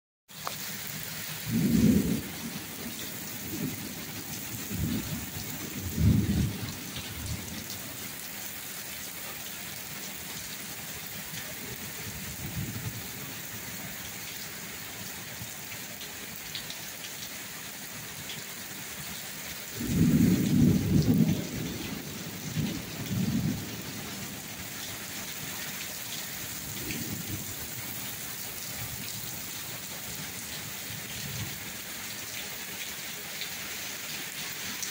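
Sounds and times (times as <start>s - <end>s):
heavy rain on pavement: 0.3s - 34.9s
thunder rumbling: 1.4s - 7.8s, 19.8s - 24.4s, 26.6s - 27.8s.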